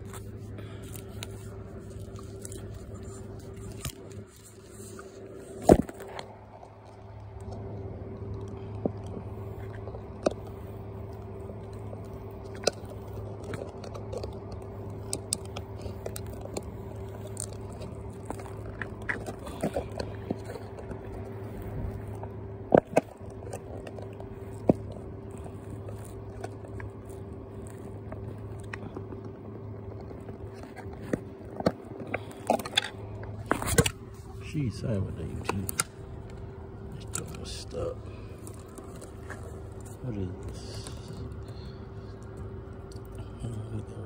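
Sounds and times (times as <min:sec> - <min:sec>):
puppy chewing wet meat: 0:00.0 - 0:44.0
steady low hum: 0:00.0 - 0:44.0.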